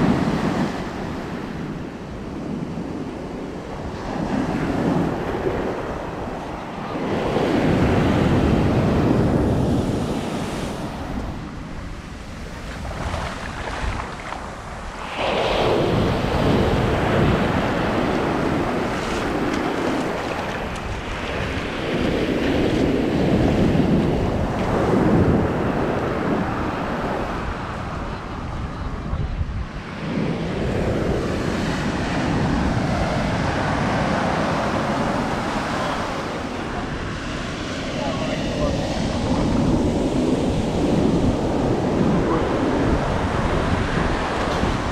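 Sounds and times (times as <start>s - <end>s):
ocean surf breaking: 0.0s - 44.9s
wind buffeting microphone: 0.0s - 44.9s.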